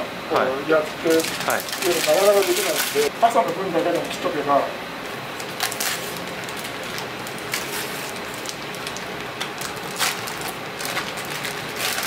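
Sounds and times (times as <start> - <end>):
plastic bags crinkling: 0.9 - 3.1, 5.4 - 12.0.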